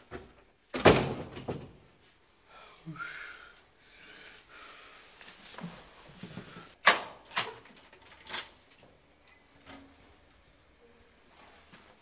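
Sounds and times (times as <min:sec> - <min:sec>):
soft handling noise: 0:05.1 - 0:06.8.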